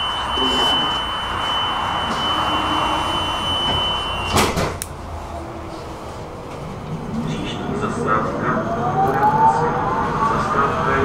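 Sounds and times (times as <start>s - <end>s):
high warning tone: 0.0s - 4.5s.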